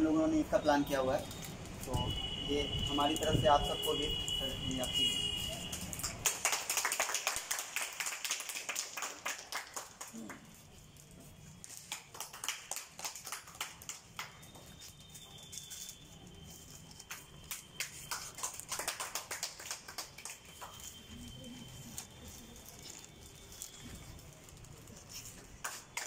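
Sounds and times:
people clapping: 4.8 - 10.6, 11.6 - 14.8, 16.7 - 23.0, 24.4 - 26.0.

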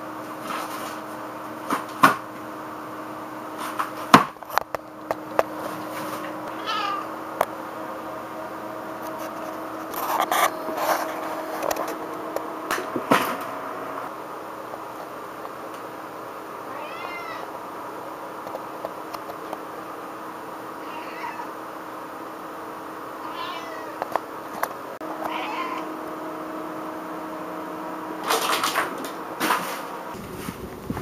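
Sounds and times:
cat meowing: 6.5 - 7.1, 16.7 - 17.5, 20.8 - 21.6, 23.2 - 24.0, 25.2 - 25.9
cardboard and paper rustling: 9.1 - 12.2.

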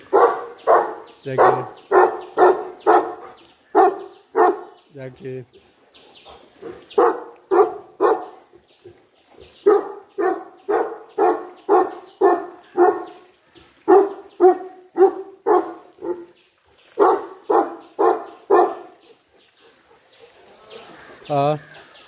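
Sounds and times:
dog barking: 0.0 - 4.8, 6.7 - 8.3, 9.6 - 13.2, 13.9 - 16.3, 17.0 - 19.1.

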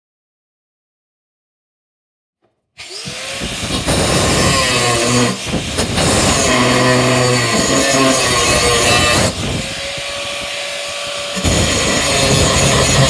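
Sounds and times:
angle grinder grinding metal: 2.8 - 13.0.

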